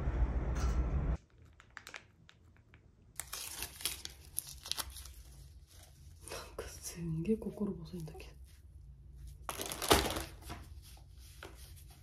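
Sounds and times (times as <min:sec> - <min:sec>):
loud rumble: 0:00.0 - 0:01.2
packaging crinkling: 0:01.2 - 0:05.8, 0:09.4 - 0:10.6.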